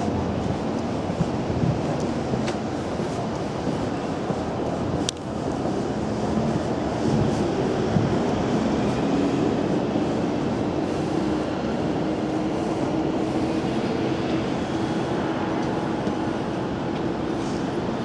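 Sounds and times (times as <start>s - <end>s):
city traffic rumble: 0.0s - 18.0s.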